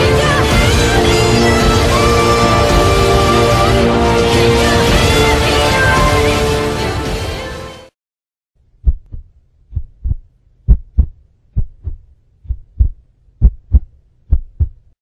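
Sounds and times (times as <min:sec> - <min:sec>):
heartbeat thumps: 0:08.8 - 0:15.0.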